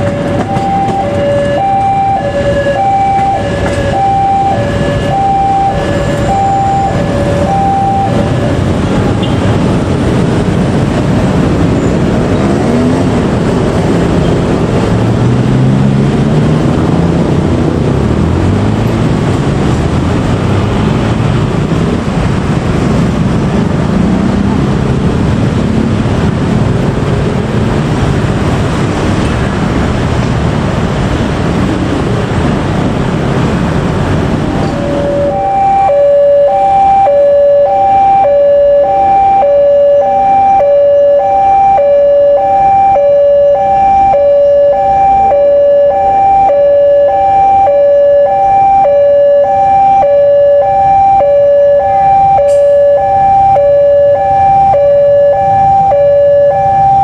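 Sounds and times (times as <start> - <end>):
train passing: 0.0 - 4.2, 5.0 - 37.2
level crossing two-tone alarm: 0.0 - 8.6, 34.7 - 57.0.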